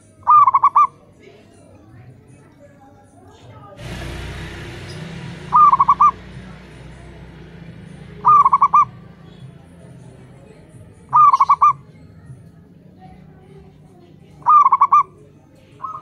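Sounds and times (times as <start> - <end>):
rushing hiss: 3.8 - 10.1
dove cooing: 14.4 - 15.2.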